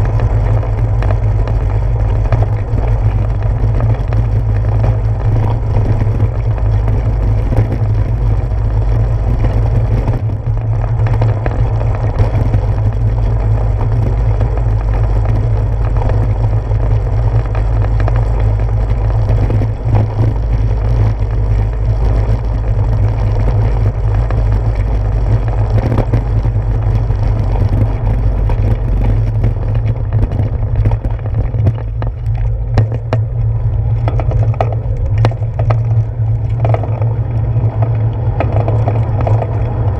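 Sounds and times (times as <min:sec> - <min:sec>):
bicycle tyres rumbling on bricks: 0:00.0 - 0:39.9
wind on microphone: 0:00.0 - 0:39.9.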